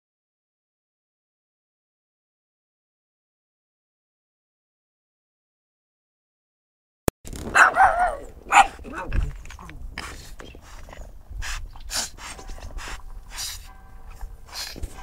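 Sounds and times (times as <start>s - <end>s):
dog barking and yapping: 7.4s - 9.3s
dog sniffing and snuffling: 8.5s - 15.0s.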